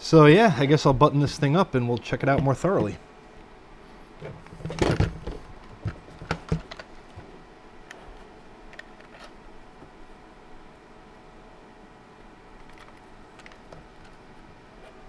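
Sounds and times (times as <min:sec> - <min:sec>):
metal box knocks and clicks: 0:04.6 - 0:06.9.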